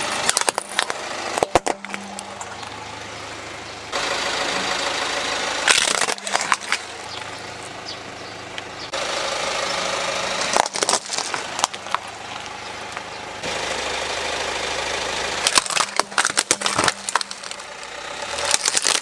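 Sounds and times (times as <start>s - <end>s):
car engine idling: 0.0s - 19.0s
plastic toys cracking under tyre: 0.1s - 2.8s, 5.7s - 7.0s, 10.4s - 12.6s, 15.4s - 19.0s.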